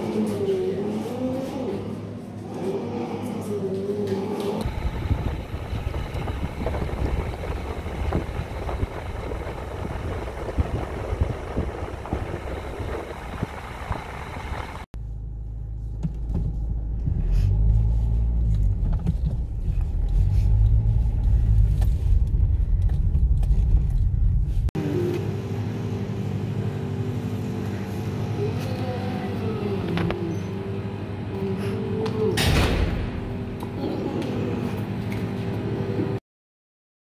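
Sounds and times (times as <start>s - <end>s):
road and wind noise: 4.6s - 14.9s, 16.1s - 24.7s
car engine and tyres rumbling: 4.6s - 24.7s.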